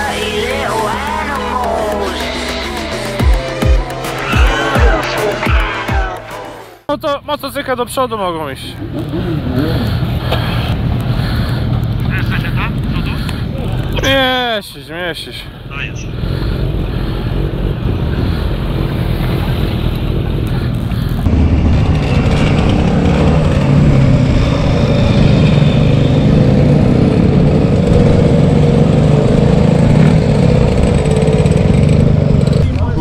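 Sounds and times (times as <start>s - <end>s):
motorcycle engine running: 16.2s - 33.0s.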